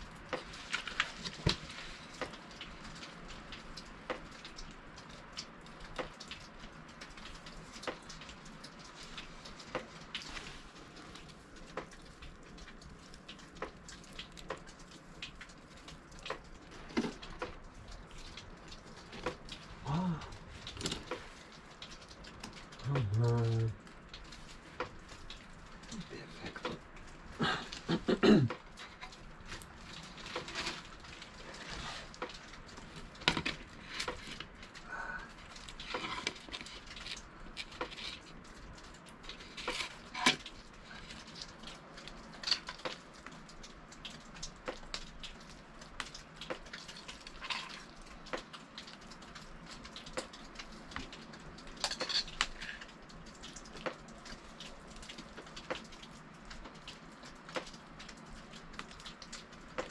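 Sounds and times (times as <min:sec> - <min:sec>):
cookware and utensils clinking: 0:51.8 - 0:52.5.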